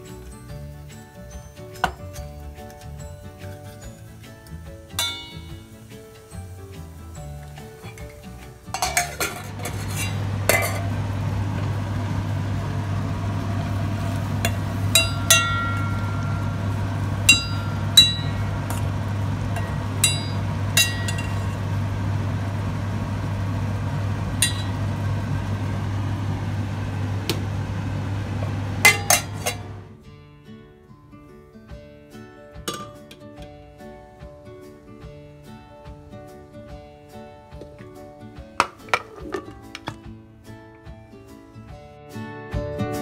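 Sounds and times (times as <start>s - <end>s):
spoon clinking against metal pot: 4.9s - 5.8s, 8.7s - 11.0s, 14.4s - 21.7s, 24.4s - 24.9s, 28.8s - 29.8s, 32.7s - 33.2s
steady low hum: 9.1s - 30.0s.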